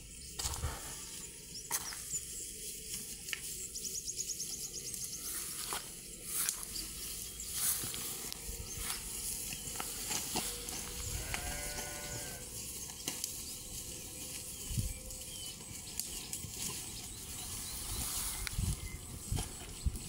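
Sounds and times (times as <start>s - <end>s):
sheep bleating: 10.9s - 12.5s.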